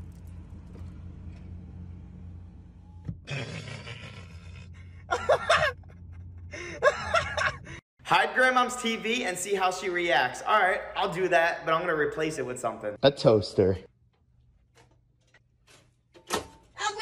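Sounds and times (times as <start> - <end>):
car idling: 0.0 - 3.3.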